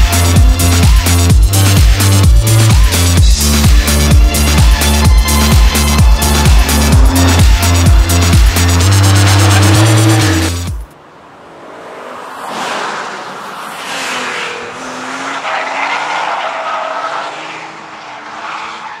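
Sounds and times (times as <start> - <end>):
background music: 0.0 - 10.9
car engine revving: 0.0 - 19.0
tyre squeal: 14.5 - 19.0.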